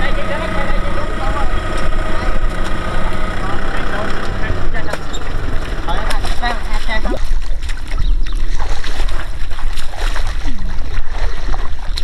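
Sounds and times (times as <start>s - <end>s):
tractor diesel engine running: 0.0s - 6.9s
mud and water splashing: 0.0s - 12.0s.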